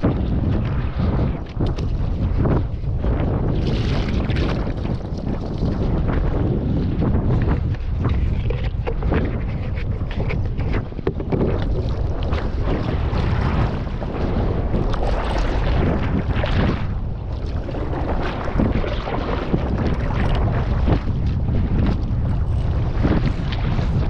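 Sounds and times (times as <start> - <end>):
sea water splashing against kayak: 0.0 - 24.0
wind buffeting microphone: 0.0 - 24.0.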